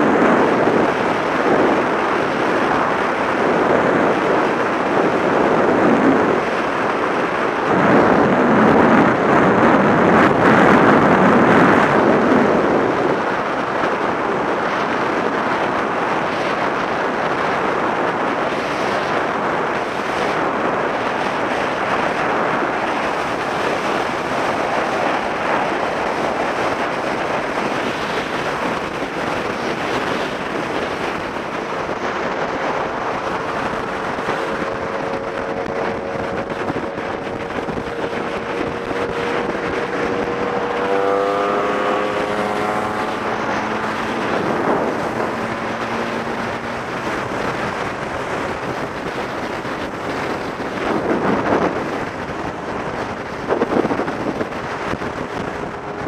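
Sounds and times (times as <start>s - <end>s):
scooter engine and tyre noise: 0.0s - 56.0s
wind rushing over microphone: 0.0s - 56.0s.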